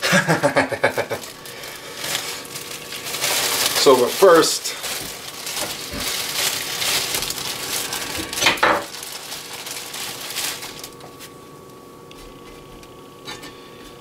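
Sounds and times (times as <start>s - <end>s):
plastic bag rustling and crinkling: 0.8s - 11.5s.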